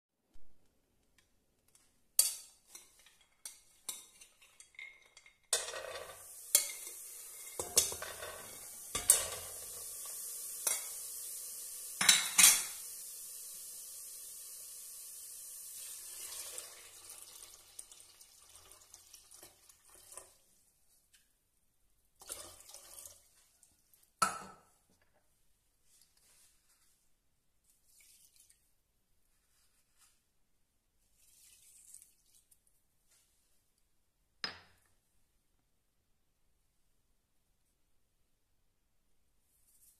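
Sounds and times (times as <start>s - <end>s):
water pouring: 5.8s - 20.6s, 22.2s - 23.9s, 27.9s - 28.6s, 31.1s - 32.7s.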